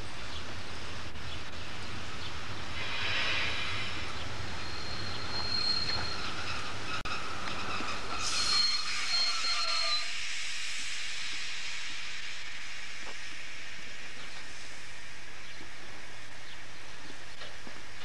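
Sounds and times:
steam train rolling: 0.0 - 18.0
steam hissing: 2.6 - 6.6, 7.6 - 17.0
wheels or brakes squealing: 2.8 - 10.2.

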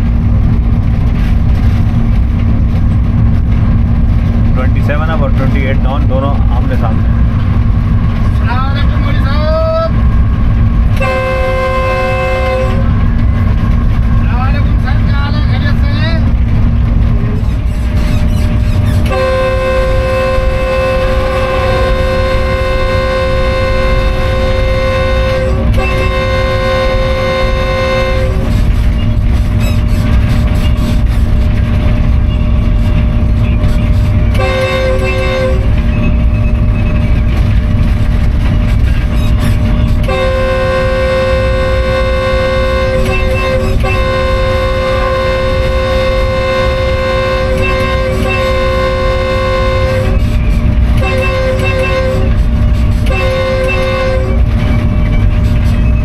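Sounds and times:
locomotive engine rumble: 0.0 - 56.0
train air horn blasts: 10.9 - 13.2, 18.9 - 29.6, 33.6 - 36.2, 39.0 - 54.6.

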